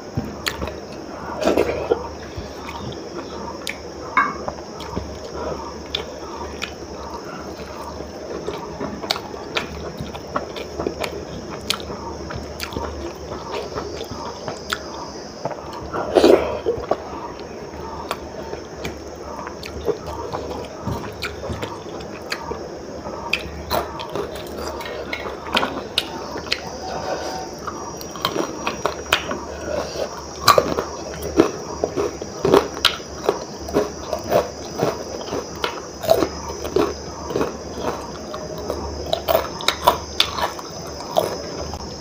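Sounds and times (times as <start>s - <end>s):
crunching of fried crisps: 27.5s - 42.0s.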